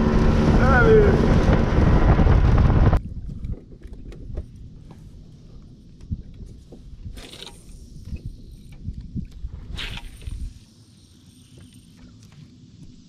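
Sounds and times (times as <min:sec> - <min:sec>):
wind noise on microphone: 0:00.0 - 0:10.6
fishing tackle clicks and knocks: 0:03.2 - 0:05.0.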